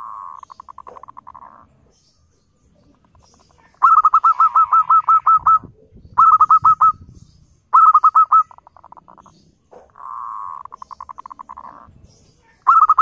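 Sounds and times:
dove cooing: 0.0s - 2.1s, 2.8s - 7.0s, 7.7s - 13.0s.

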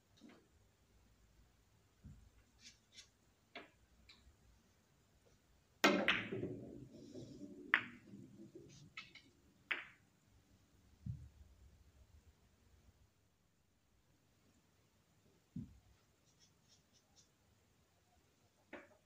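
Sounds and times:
cue striking ball: 5.8s - 8.4s
balls rolling on cloth: 5.8s - 10.0s
billiard balls clicking: 5.8s - 10.1s.

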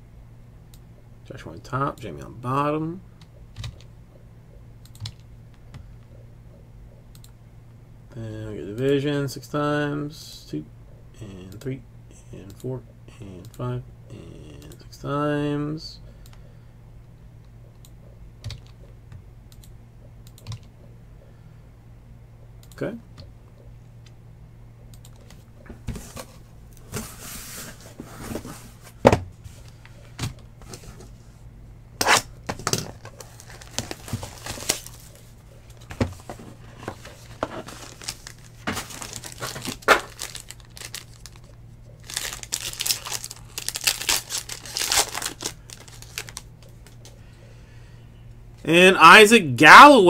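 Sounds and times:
wrapping crinkling and tearing: 32.8s - 47.1s.

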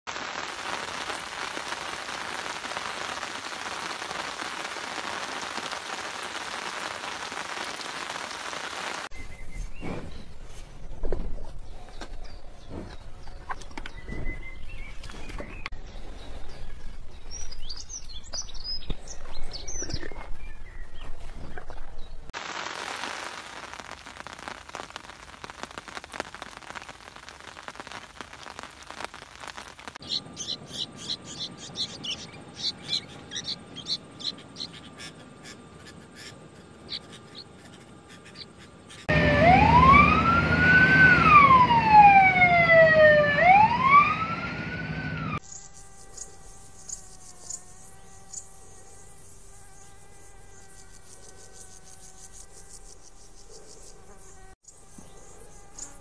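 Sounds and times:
steady rain pattering: 0.1s - 9.1s, 22.3s - 30.5s.

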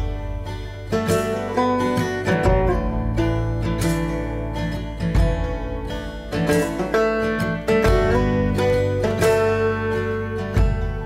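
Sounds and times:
plucked acoustic guitar music: 0.0s - 11.0s.

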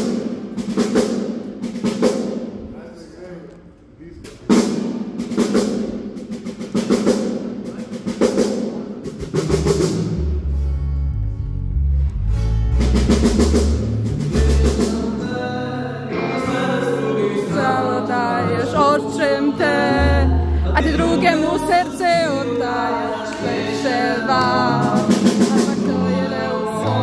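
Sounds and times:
drum kit steady beat: 0.0s - 2.7s, 4.4s - 10.5s, 12.4s - 15.6s, 17.4s - 27.0s
electric bass guitar: 10.0s - 15.2s, 19.6s - 22.9s
guitar: 10.4s - 27.0s
person singing: 14.4s - 27.0s.

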